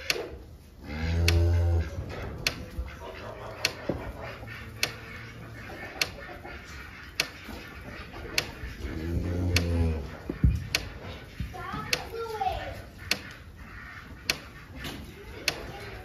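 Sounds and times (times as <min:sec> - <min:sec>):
sharp ticks: 0:00.0 - 0:16.0
cow mooing: 0:00.8 - 0:02.2, 0:08.8 - 0:10.2.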